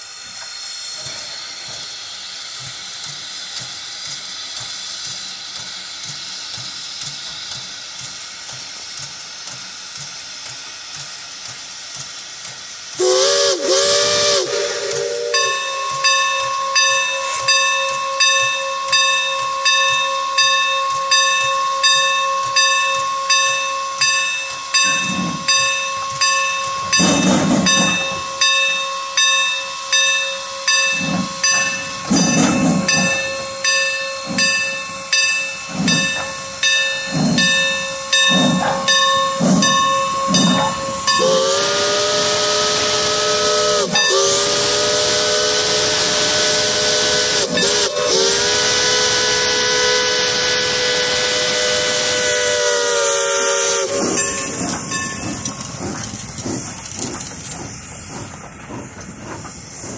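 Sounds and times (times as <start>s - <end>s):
steam locomotive exhaust chuffing: 0.0s - 59.9s
steam whistle chord blasts: 13.0s - 56.0s
steady whistling tone: 13.0s - 59.9s.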